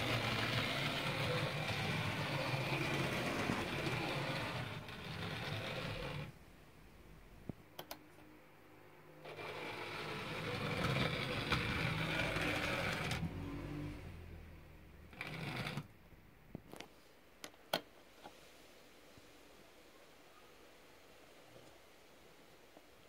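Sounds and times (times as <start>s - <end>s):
model train motor whirring: 0.0s - 6.3s, 9.2s - 13.7s, 15.1s - 15.9s.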